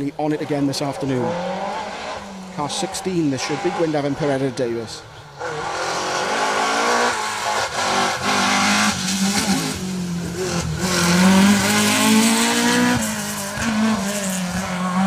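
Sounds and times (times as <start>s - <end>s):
race car passing at full throttle: 0.4s - 15.0s.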